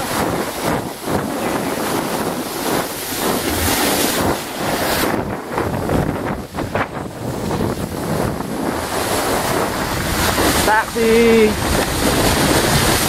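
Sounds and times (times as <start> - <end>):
water rushing and spraying: 0.0 - 13.0
wind buffeting microphone: 0.0 - 13.0.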